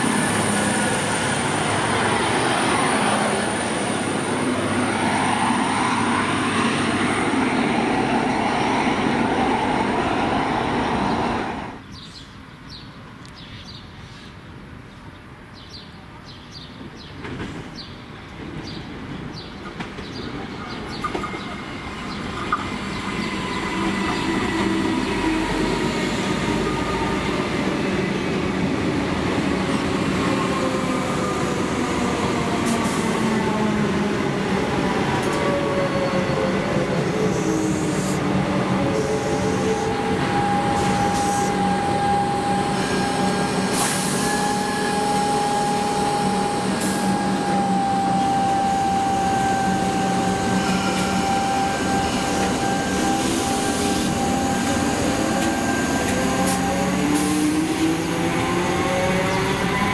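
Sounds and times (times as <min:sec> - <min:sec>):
train wheels rumbling on rail: 0:16.8 - 0:59.9
second train motor tones rising: 0:35.1 - 0:59.9
electric train motor whine: 0:38.9 - 0:59.9.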